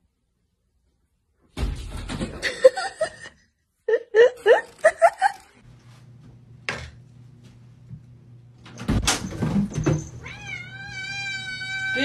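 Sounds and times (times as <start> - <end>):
cat yowling: 10.2 - 12.0.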